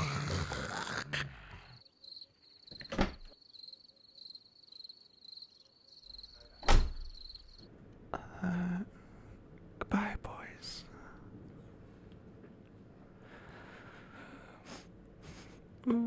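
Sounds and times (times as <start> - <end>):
cricket chirping: 1.6 - 7.7.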